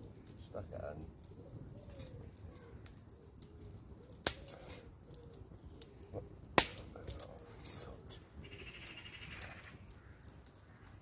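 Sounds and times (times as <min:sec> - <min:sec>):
wood fire crackling: 0:00.0 - 0:11.0
distant bird calling: 0:08.4 - 0:11.0.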